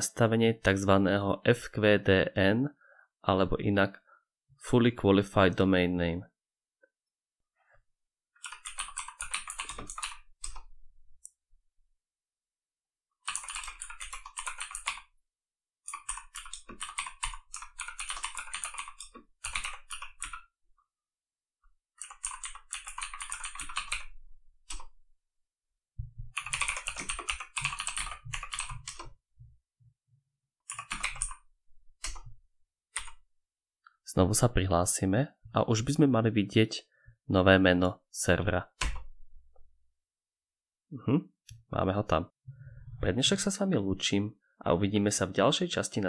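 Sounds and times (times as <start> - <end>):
typing on computer keyboard: 8.4 - 11.3, 13.2 - 15.1, 15.8 - 20.5, 22.0 - 25.0, 26.3 - 29.2, 30.6 - 32.3, 33.0 - 33.2.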